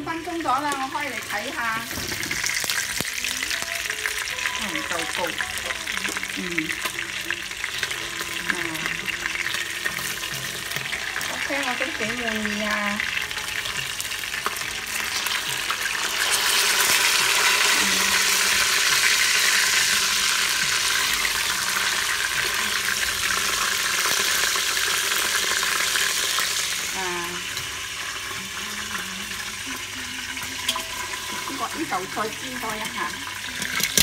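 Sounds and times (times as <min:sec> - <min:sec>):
hot oil sizzling: 0:00.0 - 0:34.0.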